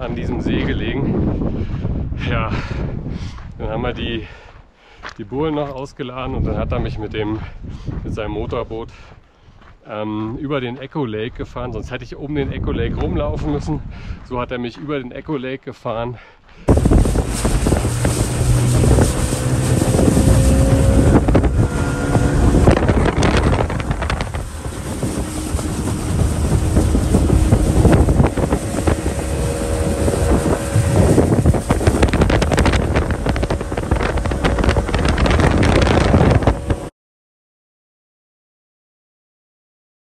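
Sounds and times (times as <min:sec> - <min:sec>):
wind noise on microphone: 0:00.0 - 0:09.7, 0:11.3 - 0:14.5, 0:16.7 - 0:36.9
rushing water: 0:16.7 - 0:36.8
motorboat engine running: 0:16.7 - 0:36.9.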